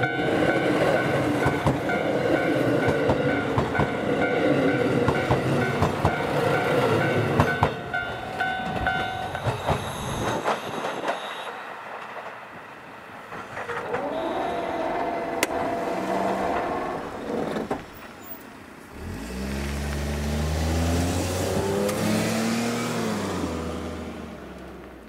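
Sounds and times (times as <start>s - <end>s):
wheels clicking over rail joints: 0.0s - 18.6s
train passing: 0.0s - 19.2s
level crossing bell ringing: 3.3s - 9.4s.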